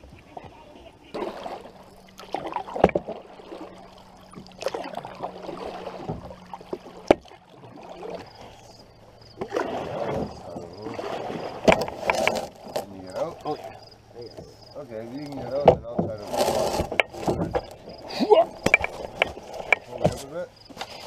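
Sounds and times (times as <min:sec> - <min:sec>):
paddle strokes through water: 0:00.0 - 0:21.0
wooden paddle knocking canoe: 0:00.0 - 0:21.0
water splashes and drips: 0:01.1 - 0:14.6.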